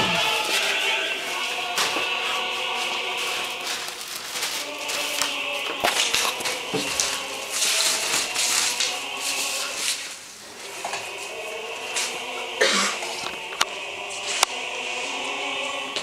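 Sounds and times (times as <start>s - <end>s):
plastic bag crinkling: 0.0s - 11.2s
music with choir: 0.0s - 16.0s.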